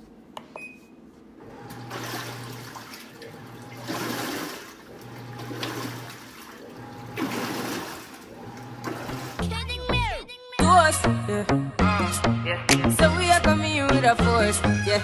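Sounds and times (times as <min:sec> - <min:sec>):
low machine hum: 0:00.0 - 0:10.0
water rushing and splashing: 0:01.8 - 0:09.4.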